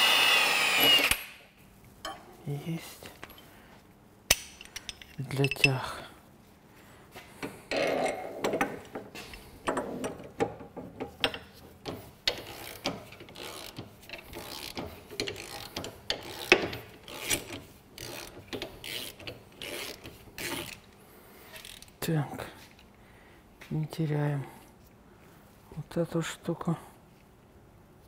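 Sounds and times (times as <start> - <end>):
ratchet wrench clicking: 12.3 - 20.8, 21.5 - 21.9.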